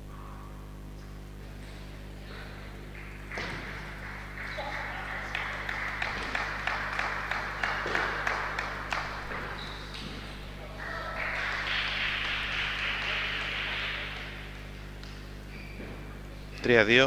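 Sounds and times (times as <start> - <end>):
low electrical hum: 0.0 - 17.0
spectators applauding: 2.1 - 15.3.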